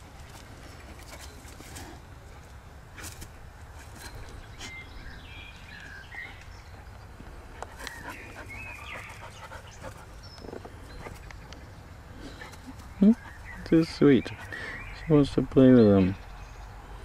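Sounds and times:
dog sniffing and snuffling: 7.6 - 14.8.

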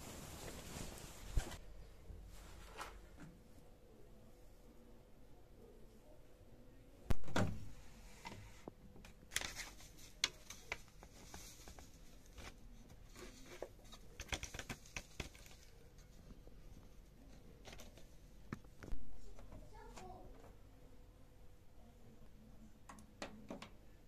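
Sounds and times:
rustling and crinkling: 0.0 - 3.5, 7.1 - 20.6.

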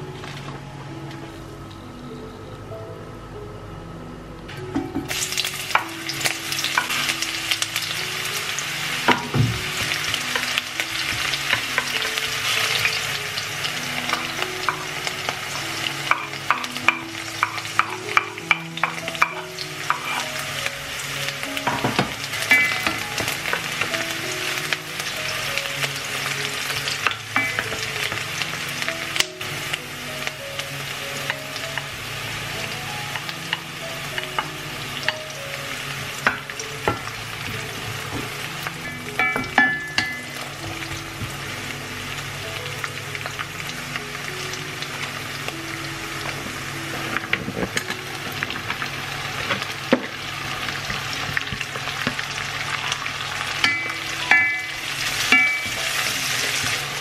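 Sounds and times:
onion and garlic sizzling in oil: 5.0 - 57.0.

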